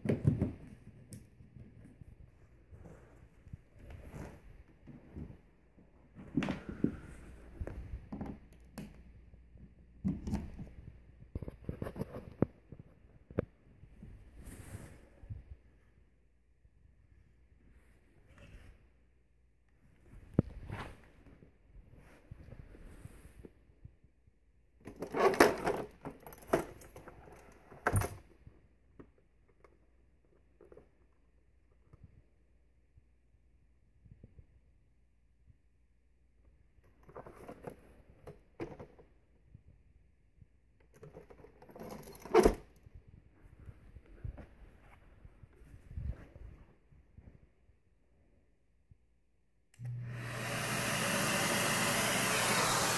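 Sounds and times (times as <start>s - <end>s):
plastic housing rustling and clattering: 24.8s - 28.3s, 40.9s - 42.8s.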